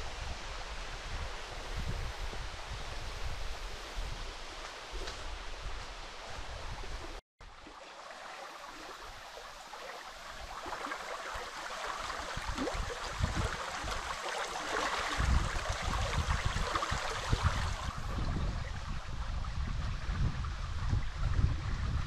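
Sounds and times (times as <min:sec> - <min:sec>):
wind rumble on microphone: 0:00.0 - 0:07.2, 0:08.8 - 0:22.0
stream babbling over stones: 0:07.4 - 0:22.0.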